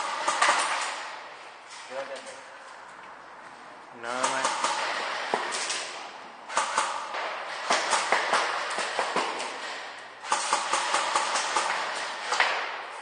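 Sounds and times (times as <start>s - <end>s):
airsoft guns firing in bursts: 0.0s - 1.3s, 4.2s - 13.0s.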